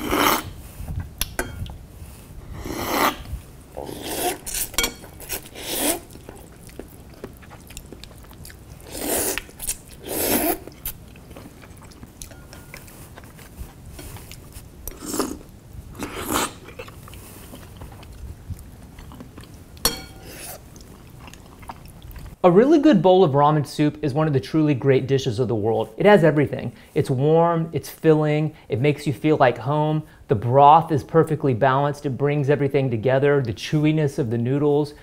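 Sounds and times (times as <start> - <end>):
man slurping noodles: 0.0 - 0.6, 2.5 - 4.6, 5.3 - 6.4, 8.8 - 10.8, 14.9 - 15.4
quiet chewing: 3.8 - 22.4.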